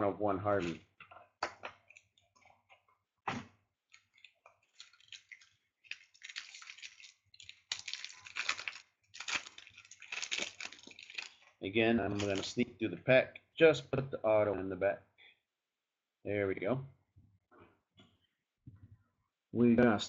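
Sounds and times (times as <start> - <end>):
plastic wrapper crinkling: 3.8 - 12.7.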